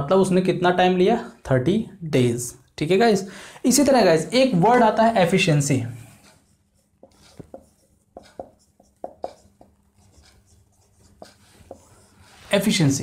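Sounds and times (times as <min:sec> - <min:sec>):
marker pen writing on whiteboard: 0:04.7 - 0:12.8.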